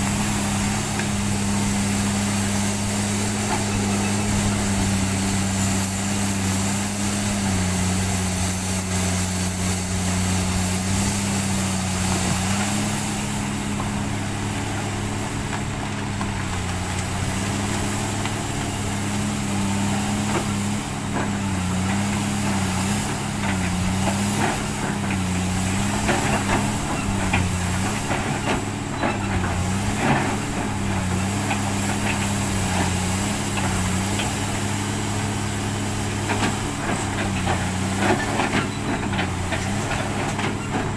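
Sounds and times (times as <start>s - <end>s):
excavator diesel engine running: 0.0s - 40.9s.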